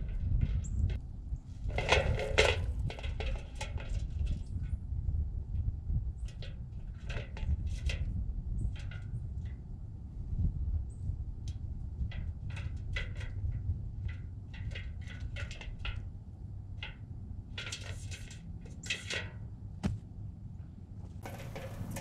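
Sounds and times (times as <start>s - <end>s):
squirrel claws scratching on metal: 17.6s - 19.3s, 21.2s - 22.0s.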